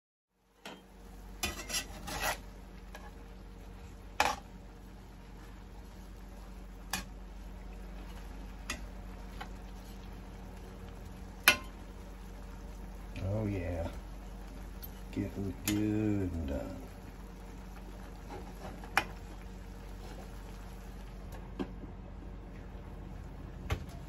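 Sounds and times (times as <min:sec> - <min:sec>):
food sizzling in a skillet: 0:00.5 - 0:21.4
fork clinking and scraping pan: 0:01.4 - 0:03.1.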